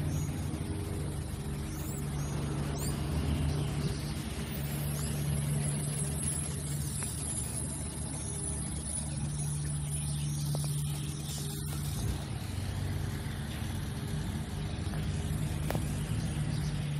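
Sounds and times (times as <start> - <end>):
low hum of traffic: 0.0 - 16.9.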